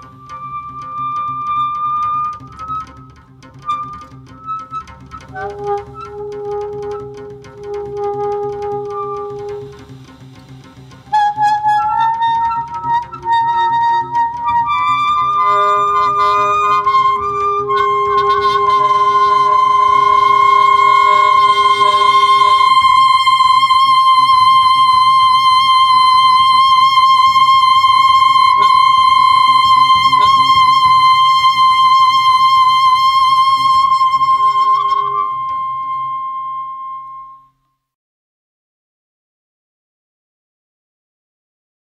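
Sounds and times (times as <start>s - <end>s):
lower held note: 0.0s - 37.6s
saxophone holding high note: 5.3s - 9.9s, 11.1s - 37.6s.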